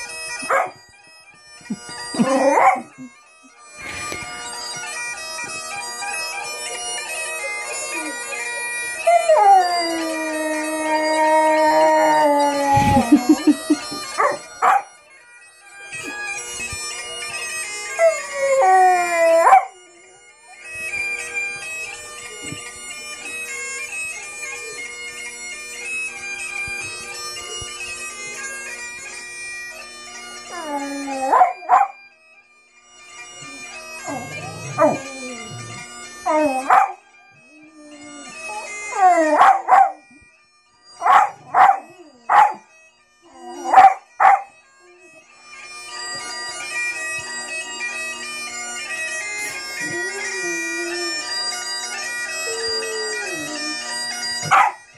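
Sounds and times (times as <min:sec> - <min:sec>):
bagpipe music: 0:00.0 - 0:54.9
dog yelping: 0:00.5 - 0:00.7, 0:02.2 - 0:02.9, 0:14.2 - 0:14.8, 0:19.3 - 0:19.7, 0:30.6 - 0:32.0, 0:34.0 - 0:37.0, 0:38.9 - 0:40.0, 0:41.0 - 0:42.6, 0:43.5 - 0:44.5, 0:54.4 - 0:54.8
dog howling: 0:02.1 - 0:03.0, 0:09.0 - 0:13.6, 0:18.0 - 0:20.0, 0:30.5 - 0:32.0, 0:33.4 - 0:40.1, 0:41.0 - 0:42.6, 0:43.3 - 0:45.1, 0:49.8 - 0:51.3, 0:52.4 - 0:54.8.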